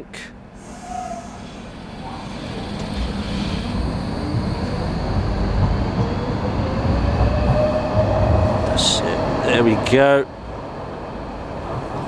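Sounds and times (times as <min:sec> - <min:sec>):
train rumble: 0:00.0 - 0:12.0
train motor whine: 0:00.6 - 0:09.0.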